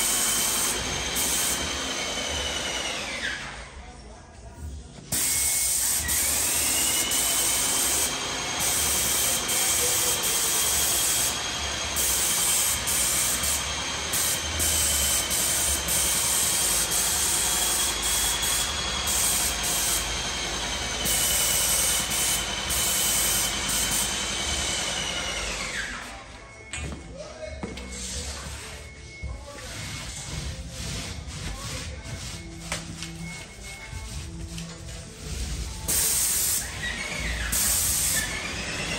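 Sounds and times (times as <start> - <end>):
paint spray gun hissing: 5.2 - 11.4, 12.0 - 20.1, 35.9 - 36.7, 37.5 - 38.2.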